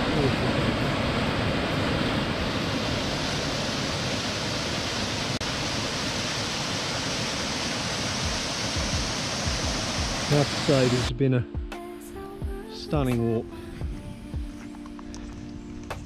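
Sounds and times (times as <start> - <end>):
waterfall rushing over rocks: 0.0 - 11.1.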